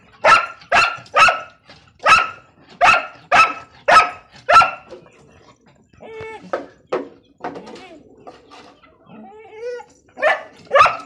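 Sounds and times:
dog barking: 0:00.2 - 0:04.9, 0:10.2 - 0:11.0.

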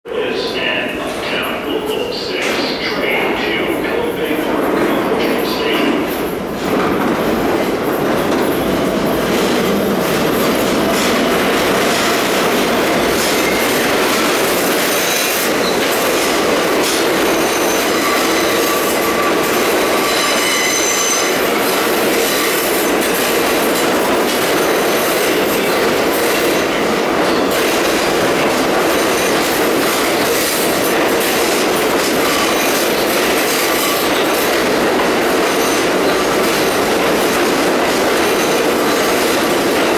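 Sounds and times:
subway train rolling rumble: 0:00.1 - 0:39.9
wheels squealing on rails: 0:12.0 - 0:28.1, 0:28.7 - 0:39.9.

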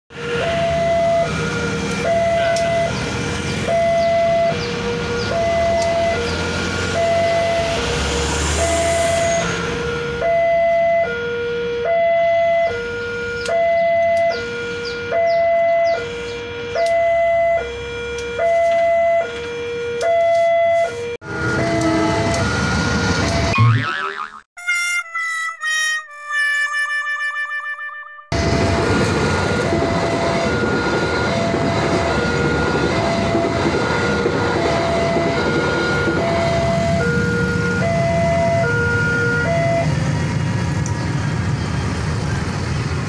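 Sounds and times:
road traffic noise: 0:00.1 - 0:26.6, 0:28.3 - 0:43.0
level crossing two-tone alarm: 0:00.2 - 0:08.0, 0:08.6 - 0:23.8, 0:28.2 - 0:40.0
motorbike: 0:00.4 - 0:10.8, 0:28.4 - 0:43.0.

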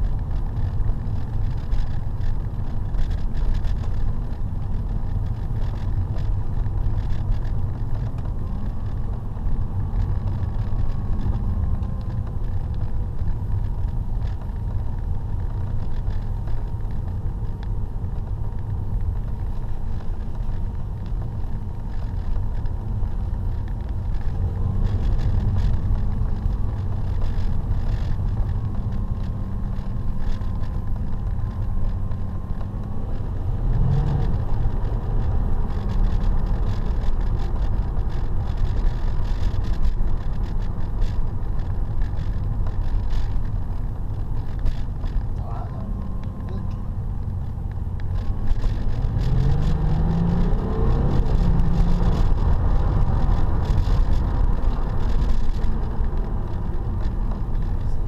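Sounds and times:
car cabin road and engine rumble: 0:00.0 - 0:58.0.

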